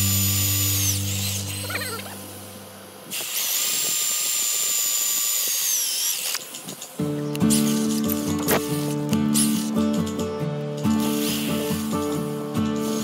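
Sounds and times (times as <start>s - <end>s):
cordless drill boring into wood: 0.0s - 2.2s, 3.1s - 8.6s.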